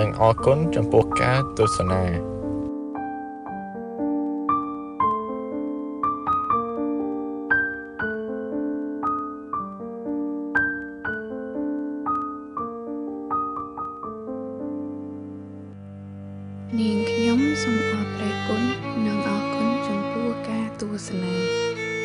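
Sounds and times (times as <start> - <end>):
slow piano melody: 0.0 - 22.0.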